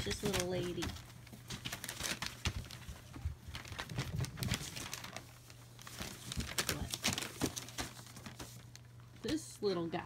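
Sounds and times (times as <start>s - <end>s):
newspaper crinkling and rustling: 0.0s - 9.4s.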